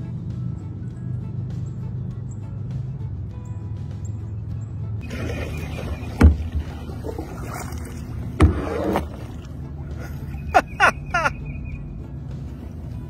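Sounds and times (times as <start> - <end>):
paddle strokes splashing water: 5.0 - 10.5.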